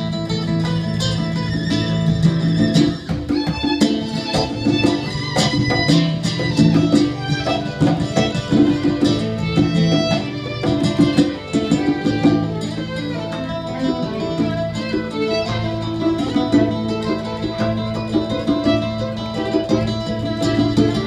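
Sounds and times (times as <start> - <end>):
nylon-string guitar: 0.0 - 21.0
violin playing: 0.0 - 21.0.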